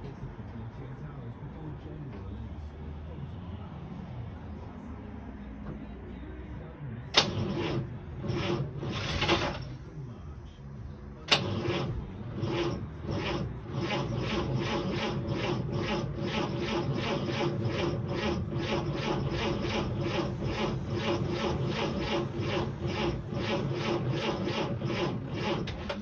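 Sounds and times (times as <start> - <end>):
engine cranking without starting: 7.1 - 9.9, 11.2 - 26.0.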